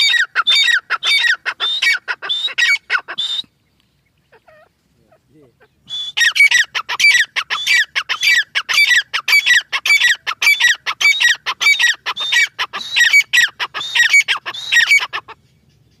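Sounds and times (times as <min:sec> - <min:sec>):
francolin harsh ringing calls: 0:04.1 - 0:16.0.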